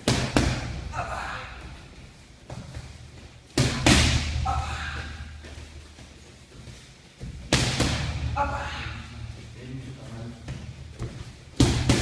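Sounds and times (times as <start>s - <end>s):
boxing gloves hitting focus mitts: 0.0s - 0.9s, 7.2s - 8.4s, 10.4s - 12.0s.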